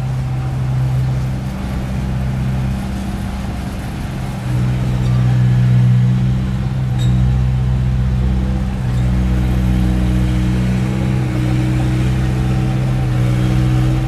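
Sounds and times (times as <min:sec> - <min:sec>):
bulldozer diesel engine: 0:00.0 - 0:14.0.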